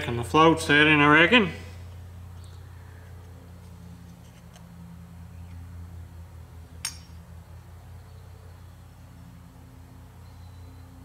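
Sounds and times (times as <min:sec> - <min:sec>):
steady low hum: 0:00.0 - 0:11.0
sharp click: 0:06.8 - 0:07.2.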